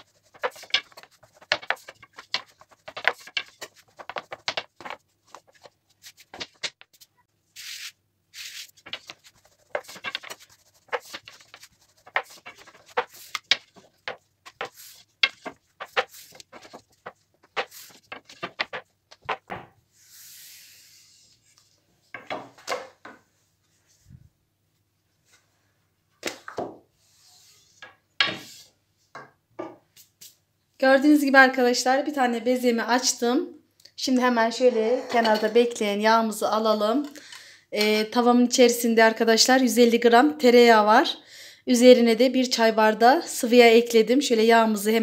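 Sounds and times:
rolling pin rolling dough: 0.0 - 7.1, 8.4 - 19.7.

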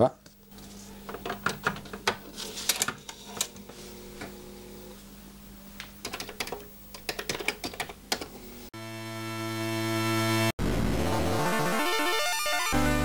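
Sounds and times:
computer keyboard typing: 6.0 - 8.3.

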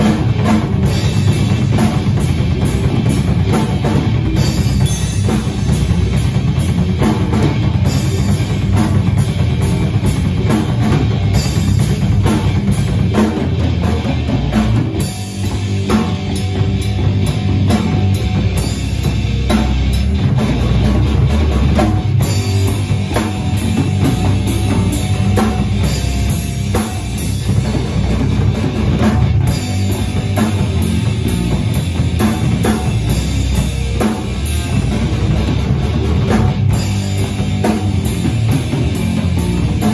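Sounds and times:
drum kit beat: 0.0 - 39.9
rock band playing live: 0.0 - 39.9.

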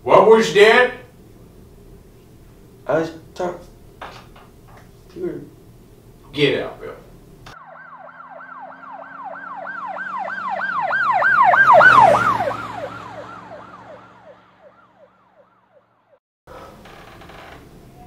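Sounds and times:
emergency siren wailing: 7.5 - 16.2.

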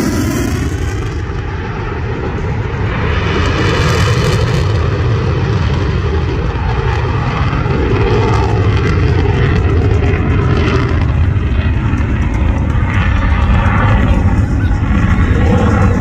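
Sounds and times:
fighter jet engine rumble: 0.0 - 16.0.

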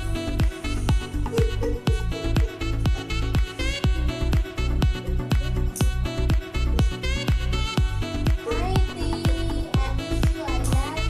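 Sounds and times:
electronic dance music: 0.0 - 11.0.

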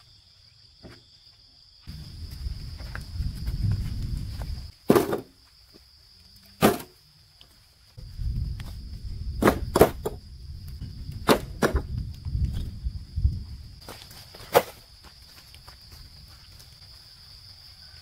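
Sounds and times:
insects buzzing: 0.0 - 18.0
low rumble: 8.0 - 13.8.

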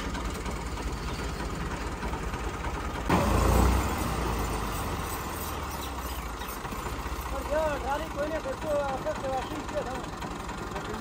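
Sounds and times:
tractor diesel engine idling: 0.0 - 11.0.

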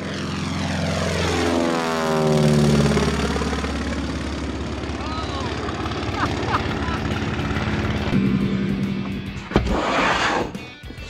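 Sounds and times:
propeller airplane flying past: 0.0 - 11.0.

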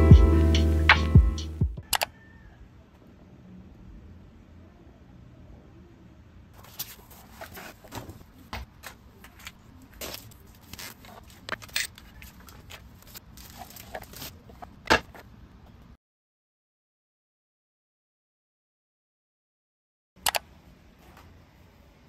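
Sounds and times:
parts clattering: 6.6 - 15.3
packaging paper rustling: 9.3 - 14.4
sharp click: 20.2 - 20.5.

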